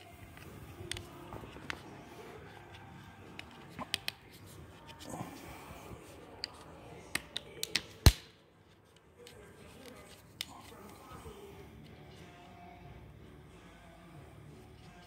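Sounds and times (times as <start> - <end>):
sharp snap of clip: 7.2 - 8.4.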